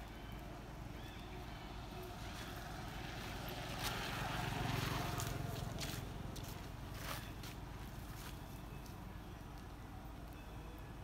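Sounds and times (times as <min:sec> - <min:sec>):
vehicle engine passing by: 0:01.1 - 0:08.3.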